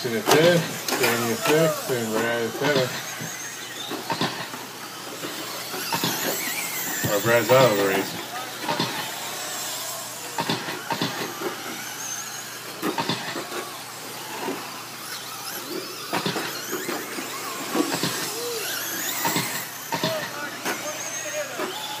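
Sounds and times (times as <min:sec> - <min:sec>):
tyres hissing on dirt: 0:00.0 - 0:04.5
high electric motor whines: 0:00.0 - 0:22.0.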